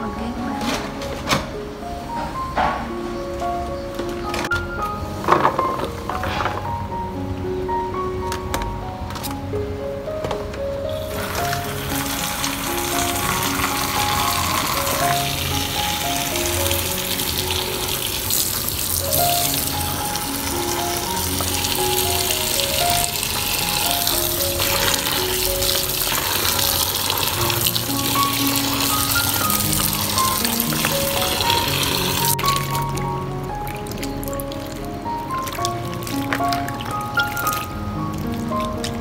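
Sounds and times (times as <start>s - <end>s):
background music: 0.0s - 39.0s
hands rubbing and rinsing: 11.1s - 33.0s, 33.6s - 39.0s.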